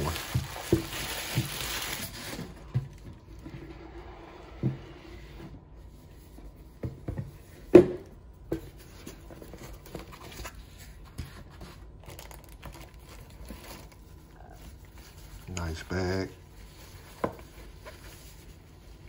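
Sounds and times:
foam and plastic wrapping rustling: 0:00.0 - 0:03.4, 0:08.7 - 0:19.0.

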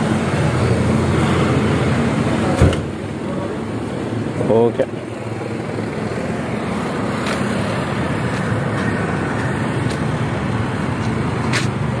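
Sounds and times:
road traffic rumble: 0:00.0 - 0:12.0
motor scooter passing: 0:05.0 - 0:12.0.

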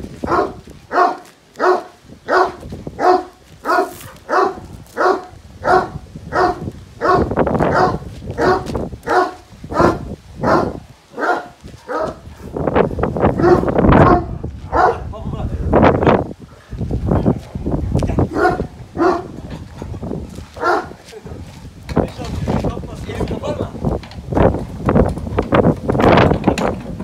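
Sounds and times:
dog barking: 0:00.2 - 0:12.2, 0:13.4 - 0:15.1, 0:18.3 - 0:19.4, 0:20.6 - 0:21.0.

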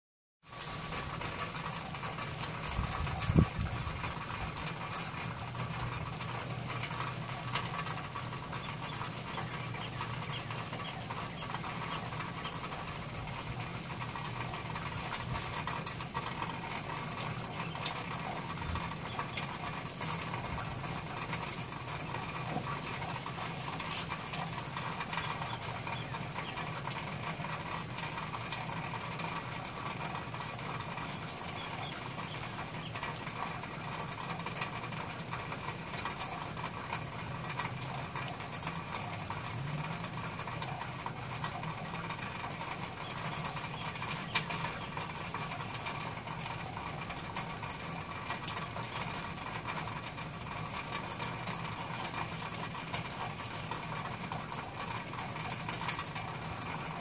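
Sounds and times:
faint bird chirps: 0:08.2 - 0:15.8, 0:20.9 - 0:27.0, 0:30.9 - 0:33.6.

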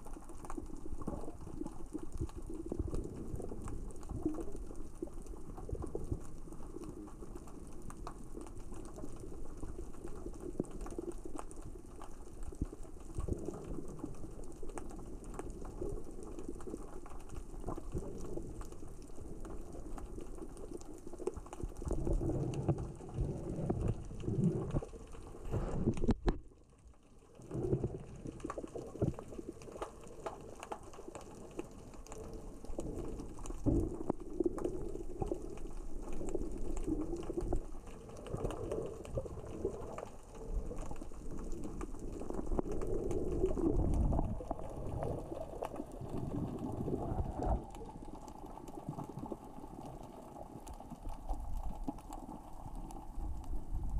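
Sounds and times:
rocks knocking underwater: 0:25.6 - 0:26.5.

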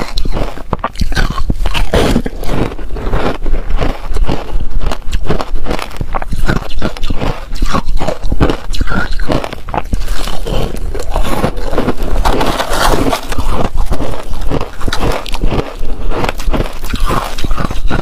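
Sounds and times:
crunching and chewing ice: 0:00.0 - 0:18.0.

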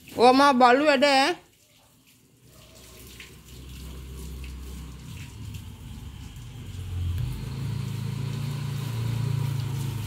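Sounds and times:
garden hose spraying water: 0:00.0 - 0:10.0.

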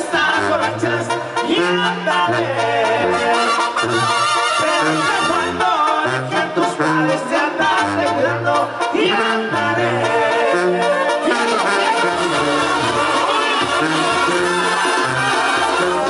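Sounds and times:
sousaphone bass line: 0:00.0 - 0:16.0
trumpets and clarinets: 0:00.0 - 0:16.0
percussion: 0:11.3 - 0:16.0.

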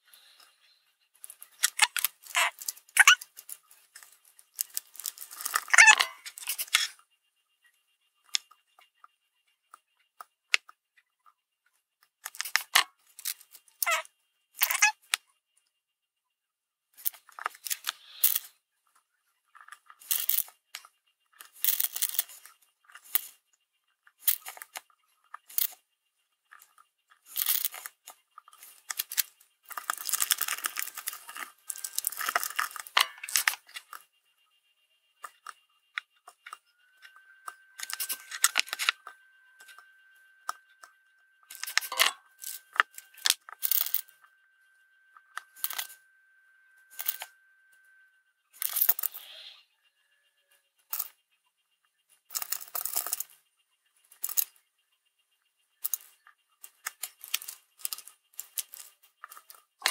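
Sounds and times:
steady high tone: 0:36.4 - 0:48.3.

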